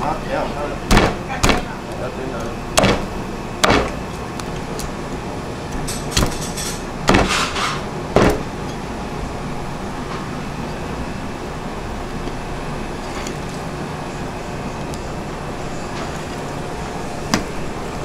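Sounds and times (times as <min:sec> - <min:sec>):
steady background din: 0:00.8 - 0:04.0
cleaver chopping on wooden block: 0:00.9 - 0:01.7, 0:02.8 - 0:04.0.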